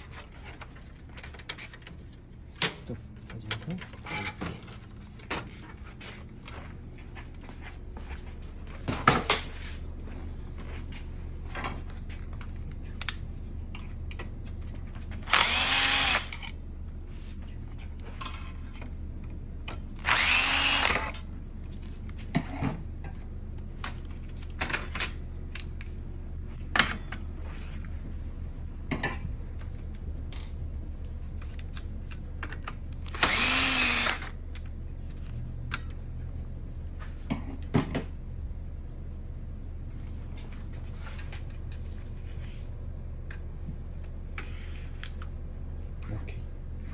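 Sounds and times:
power driver motor whining: 0:15.2 - 0:16.5, 0:20.0 - 0:21.2, 0:33.0 - 0:34.3.

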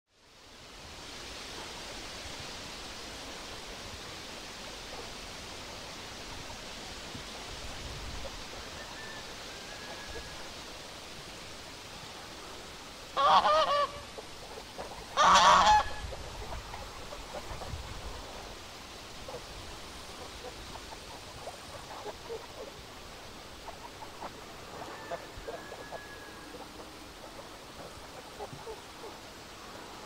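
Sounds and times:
steady background hiss: 0:00.1 - 0:30.0
goose honking: 0:13.2 - 0:14.2, 0:14.8 - 0:16.6.

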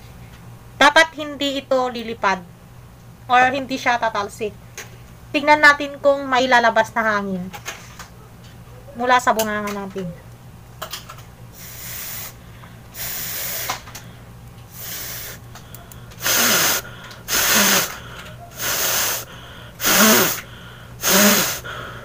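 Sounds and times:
person blowing through face mask: 0:11.6 - 0:13.8, 0:14.7 - 0:15.4, 0:16.2 - 0:22.0.

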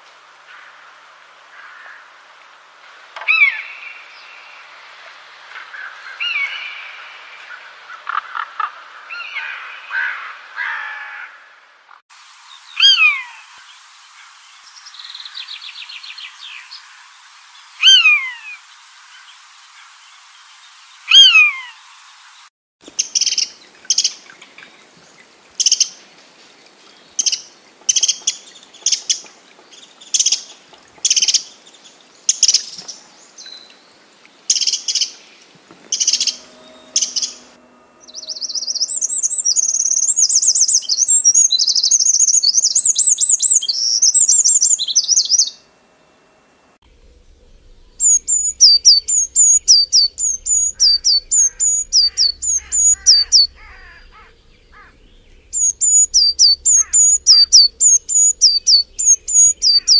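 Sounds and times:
descending bird calls: 0:12.7 - 0:13.6, 0:17.7 - 0:18.6, 0:21.1 - 0:21.8, 0:34.5 - 0:45.7, 0:46.9 - 0:59.9
fast warbling birdsong: 0:14.1 - 0:18.6, 0:20.2 - 0:26.0, 0:34.5 - 0:45.6, 0:46.9 - 0:59.9
short sharp bird calls: 0:17.8 - 0:18.6, 0:21.1 - 0:21.8, 0:48.0 - 0:59.9.

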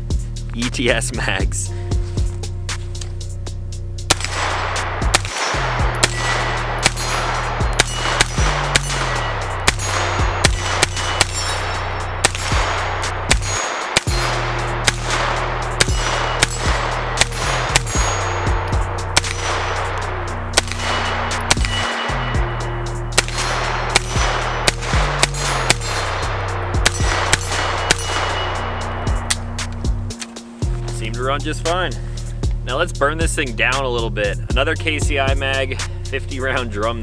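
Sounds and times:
background music with bass line: 0:00.0 - 0:37.0
pistol firing single shots: 0:04.1 - 0:22.4, 0:23.2 - 0:30.3.

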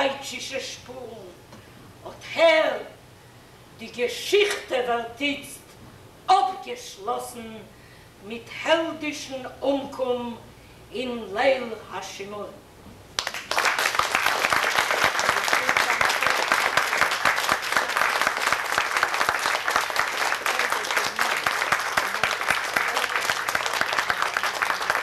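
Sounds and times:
audience applauding: 0:13.2 - 0:25.0.

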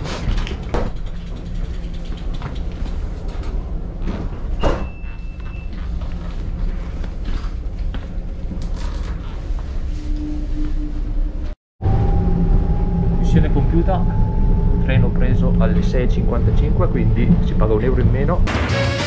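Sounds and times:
bicycles knocking and rattling: 0:00.0 - 0:09.4
train carriage rumble: 0:00.0 - 0:10.6
low steady tone: 0:09.9 - 0:18.2.

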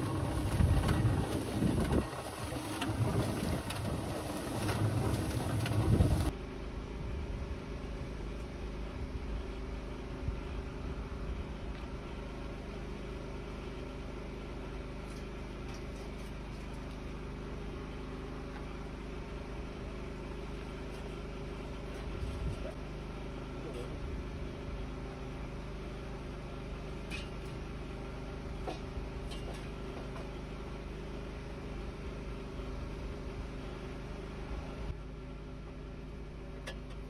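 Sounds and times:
cement mixer drum churning: 0:00.0 - 0:06.3
low mechanical hum: 0:00.0 - 0:37.0.

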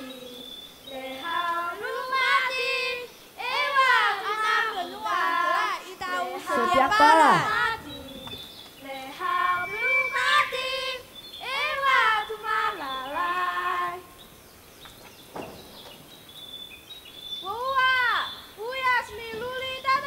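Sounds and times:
children singing: 0:00.0 - 0:14.2
voice calling out: 0:06.4 - 0:07.6.

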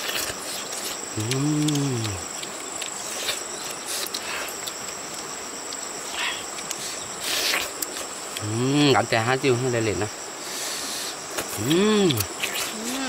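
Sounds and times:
rustling crunching noises: 0:00.0 - 0:08.5
crickets trilling: 0:00.0 - 0:13.0
man humming: 0:01.1 - 0:02.3, 0:11.6 - 0:13.0.

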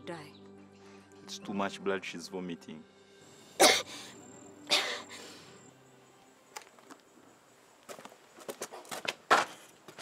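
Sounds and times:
woman coughing harshly: 0:03.6 - 0:03.9, 0:04.7 - 0:05.1.

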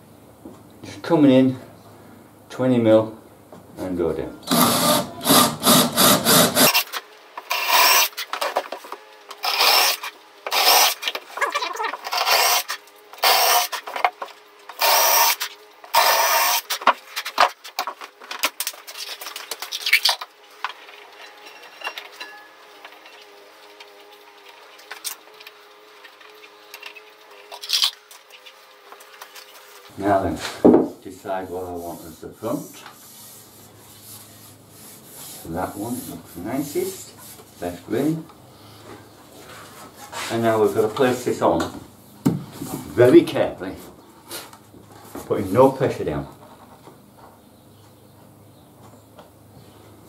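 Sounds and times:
cordless drill boring into wood: 0:04.4 - 0:08.2, 0:09.4 - 0:11.1, 0:12.0 - 0:13.8, 0:14.8 - 0:16.7
rough rubbing strokes on wood: 0:31.2 - 0:38.2.

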